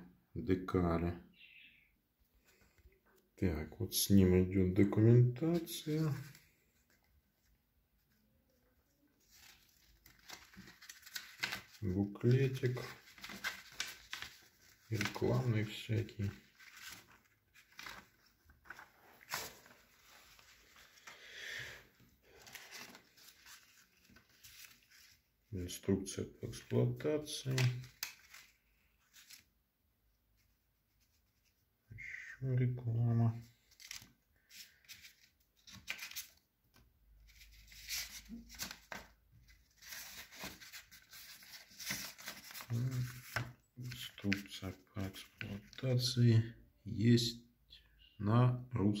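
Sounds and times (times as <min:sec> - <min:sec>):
paper rustling: 0:05.4 - 0:08.2, 0:09.1 - 0:21.2, 0:21.9 - 0:25.3, 0:26.5 - 0:29.5, 0:33.5 - 0:45.8.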